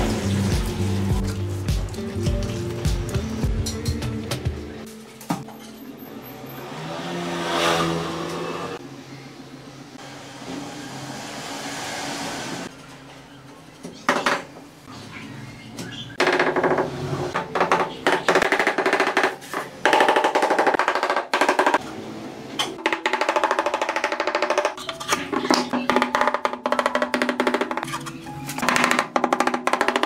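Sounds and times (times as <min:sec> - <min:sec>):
rubber mallet tapping tiles: 0:25.9 - 0:27.8.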